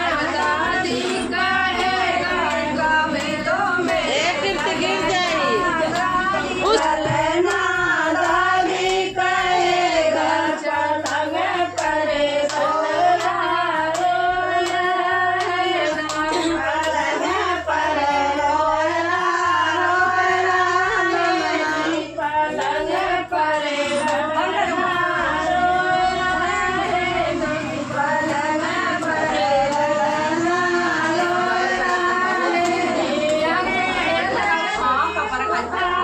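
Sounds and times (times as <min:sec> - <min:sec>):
women singing in unison: 0:00.0 - 0:36.0
sharp claps: 0:11.0 - 0:17.0.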